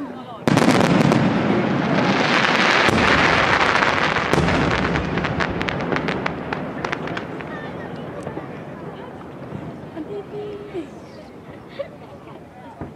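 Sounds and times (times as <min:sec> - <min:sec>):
sharp firework reports: 0:00.4 - 0:10.0
fireworks bursting and crackling: 0:00.4 - 0:12.9.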